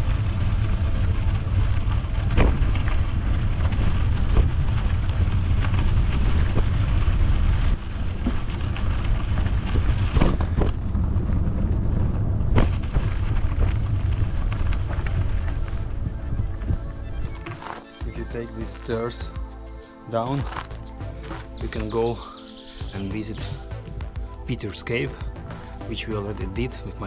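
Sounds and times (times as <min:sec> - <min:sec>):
wind buffeting microphone: 0:00.0 - 0:17.8.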